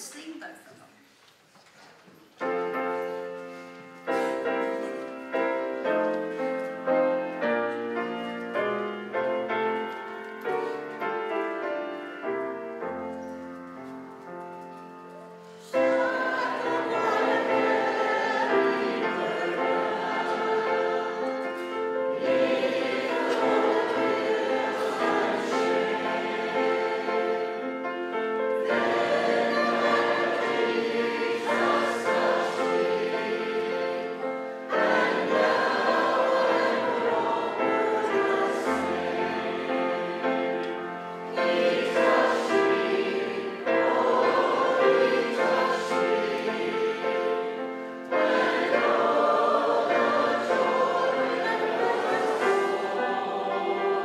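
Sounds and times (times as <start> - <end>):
group singing a hymn: 15.4 - 54.0.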